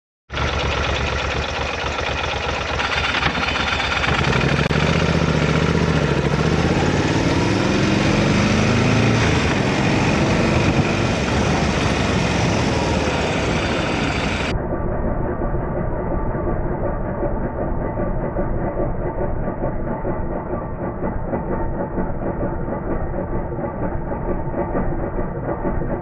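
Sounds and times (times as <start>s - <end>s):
motorcycle engine revving: 0.3s - 14.6s
wind and road noise: 2.8s - 14.5s.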